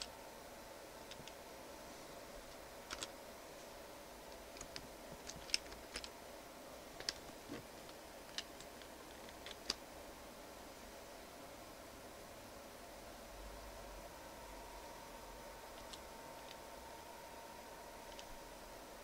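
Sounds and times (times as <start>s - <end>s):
faint steady hum: 0.0s - 19.0s
keyboard typing: 1.1s - 1.4s, 2.8s - 3.2s, 4.3s - 6.1s, 7.0s - 9.8s, 15.7s - 16.7s.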